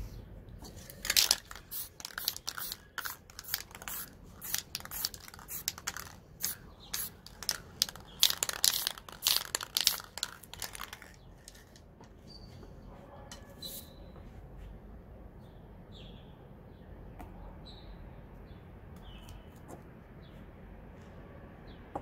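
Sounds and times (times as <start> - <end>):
spray paint hissing bursts: 0.7 - 11.8.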